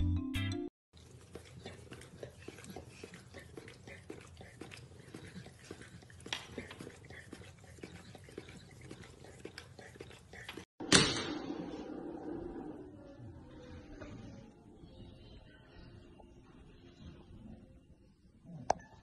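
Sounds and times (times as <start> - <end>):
dog licking wet smacking: 1.0 - 10.7.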